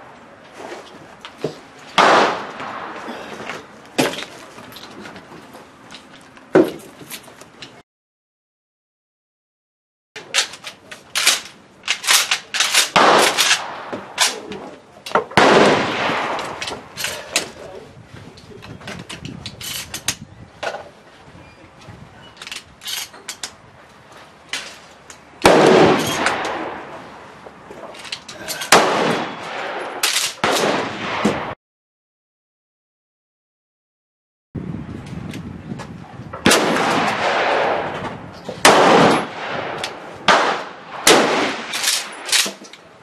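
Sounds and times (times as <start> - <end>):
lighter rifle shots: 2.0 - 3.0, 10.4 - 14.6, 15.3 - 17.5, 25.4 - 26.9, 28.6 - 31.4, 36.4 - 38.0, 38.6 - 42.7
shotgun blasts: 2.0 - 3.0, 12.7 - 14.5, 15.4 - 16.6, 25.4 - 26.9, 28.7 - 31.6, 36.4 - 38.0, 38.6 - 42.3.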